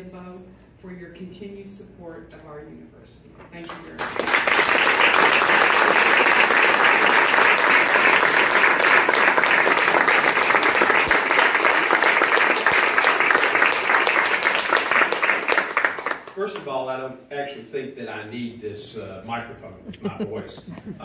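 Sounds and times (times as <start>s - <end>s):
audience applause: 4.0s - 16.5s.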